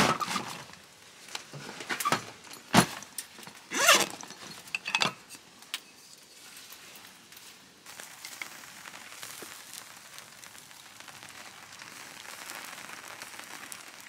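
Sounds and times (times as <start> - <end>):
rummaging in canvas bag: 3.7 - 4.7.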